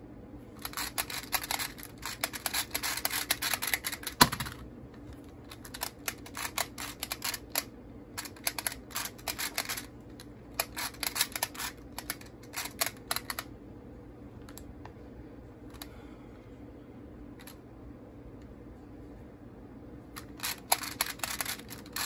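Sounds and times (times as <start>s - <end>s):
puzzle dials clicking: 0.6s - 4.6s, 5.5s - 9.9s, 10.5s - 13.5s, 20.2s - 22.0s.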